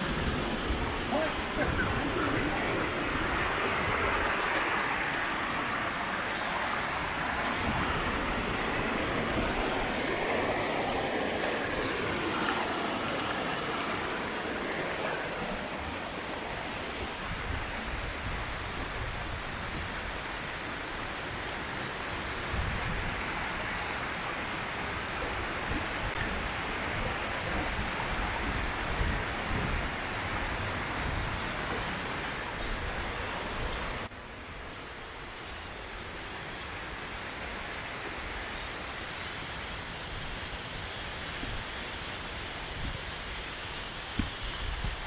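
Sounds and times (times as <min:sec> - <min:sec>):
wind gusts on microphone: 0:00.0 - 0:34.1, 0:35.1 - 0:45.0
waterfall rushing: 0:00.0 - 0:45.0.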